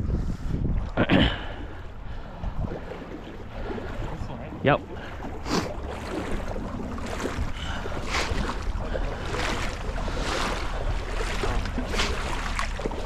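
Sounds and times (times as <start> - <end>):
wind buffeting microphone: 0.0 - 13.0
stream water rushing: 2.7 - 13.0.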